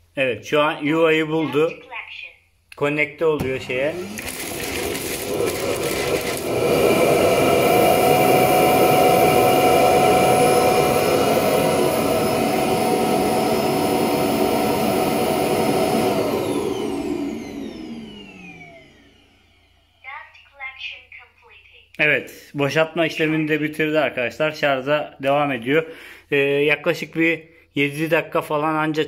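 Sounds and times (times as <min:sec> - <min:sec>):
suction motor whining: 0:03.4 - 0:20.0.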